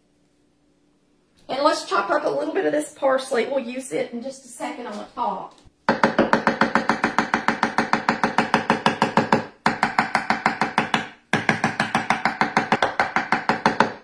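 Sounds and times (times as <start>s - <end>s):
knife chopping on wooden board: 5.9s - 14.0s.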